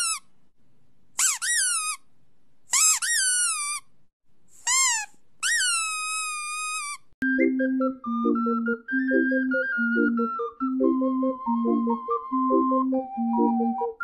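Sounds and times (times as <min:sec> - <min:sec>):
squeaky toy squeaking: 0:00.0 - 0:00.3, 0:01.2 - 0:02.1, 0:02.7 - 0:03.9, 0:04.6 - 0:07.2.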